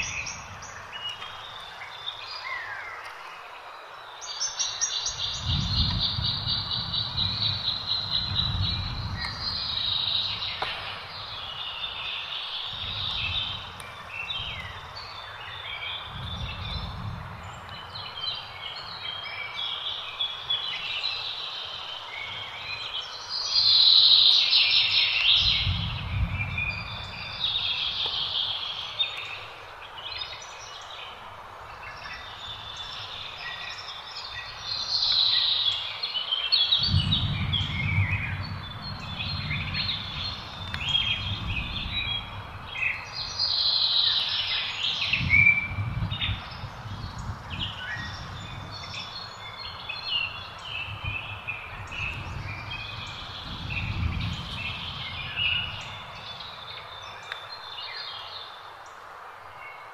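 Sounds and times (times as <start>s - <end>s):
small birds chirping: 0.0s - 59.9s
low rumble: 5.4s - 11.8s, 36.8s - 42.8s.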